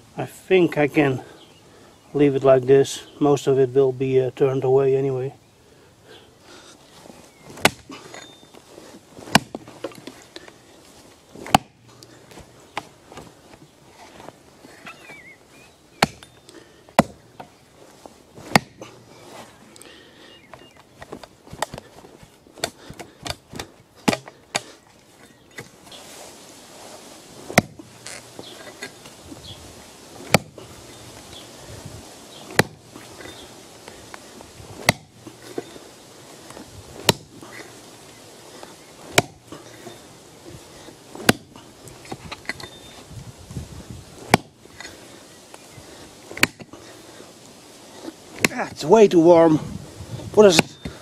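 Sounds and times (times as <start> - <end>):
axe chopping into tree stump: 7.5 - 8.0, 9.2 - 10.0, 11.4 - 11.8, 16.0 - 16.3, 17.0 - 17.5, 18.4 - 18.9, 22.6 - 24.7, 27.5 - 28.2, 30.2 - 30.6, 32.5 - 32.8, 34.8 - 35.2, 37.0 - 37.4, 39.1 - 39.5, 41.2 - 41.6, 44.3 - 44.6, 46.4 - 46.7, 50.4 - 50.9.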